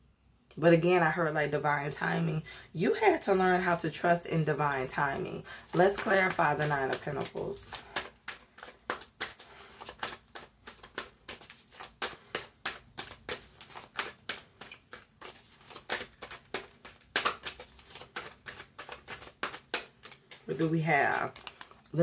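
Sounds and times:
cards being shuffled: 4.6 - 22.0.

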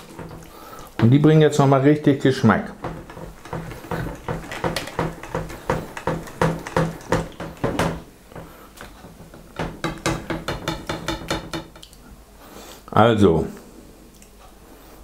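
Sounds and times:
knocks and scrapes on plastic: 0.0 - 1.2, 2.7 - 11.8.

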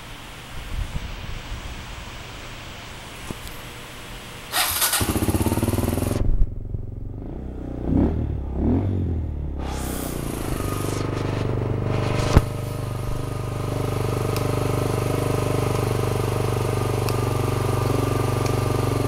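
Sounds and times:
motorcycle engine revving: 4.5 - 19.0
motorcycle engine starting and idling: 4.5 - 19.0.

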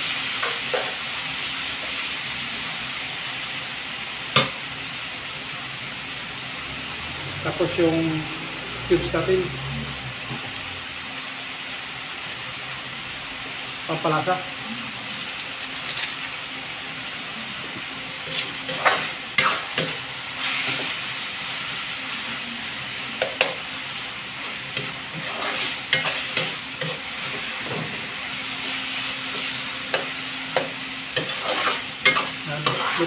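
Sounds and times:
food sizzling in a wok: 0.0 - 33.0
metal spatula scraping pan: 18.2 - 20.9, 24.7 - 28.0, 29.3 - 33.0.

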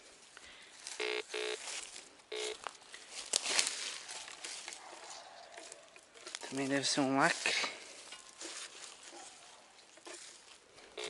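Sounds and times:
metal detector beeping tones: 1.0 - 1.6, 2.3 - 2.6.

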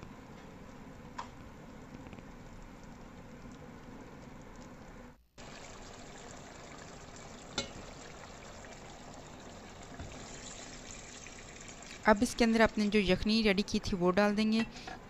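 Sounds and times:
curry simmering in a pot: 1.2 - 12.8.

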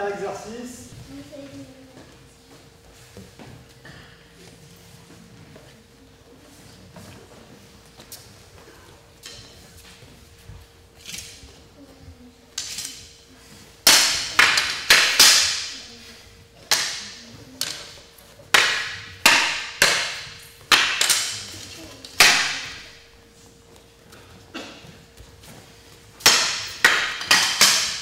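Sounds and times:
wooden staff and sword clacking: 12.5 - 13.2, 13.8 - 16.0, 16.6 - 23.0, 26.2 - 28.0.

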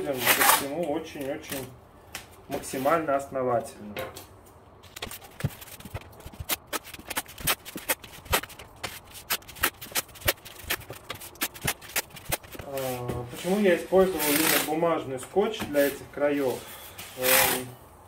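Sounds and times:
masking tape pulled off roll: 0.2 - 0.7, 4.9 - 12.9, 14.2 - 14.7.

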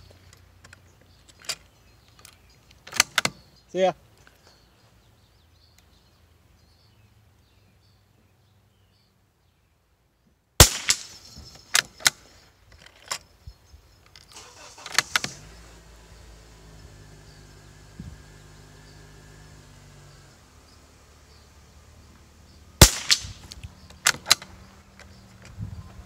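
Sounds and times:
rifle shot: 10.6 - 12.2, 22.8 - 24.4.

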